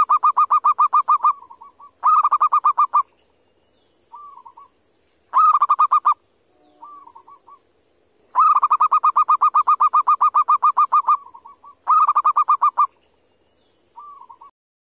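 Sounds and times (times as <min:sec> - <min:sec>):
dove cooing: 0:00.0 - 0:03.0, 0:04.1 - 0:04.7, 0:05.3 - 0:07.6, 0:08.4 - 0:12.9, 0:14.0 - 0:14.5
faint high hiss: 0:00.0 - 0:14.5.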